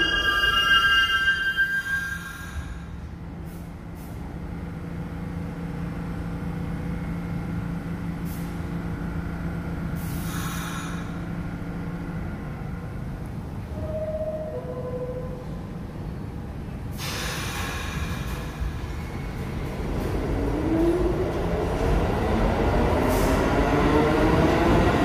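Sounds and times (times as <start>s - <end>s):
subway train hum and rumble: 0.0s - 25.0s
air hisses: 10.0s - 11.1s, 17.0s - 18.6s.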